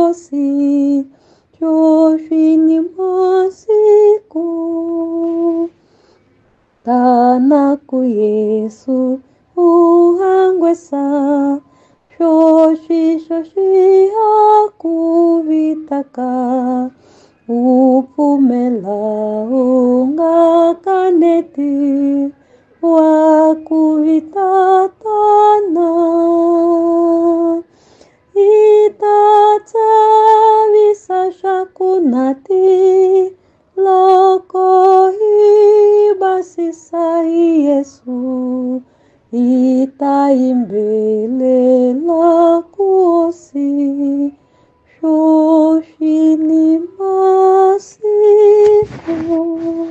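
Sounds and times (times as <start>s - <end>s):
woman singing unaccompanied: 0.0s - 5.8s, 6.8s - 49.9s.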